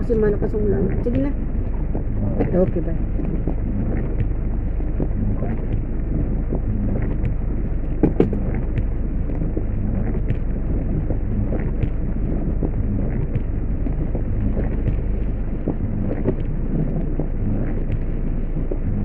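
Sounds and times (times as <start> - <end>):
raindrops ticking on glass: 0.1 - 18.9
heavy rain on a car: 0.2 - 19.0
loud knocks: 8.0 - 8.9.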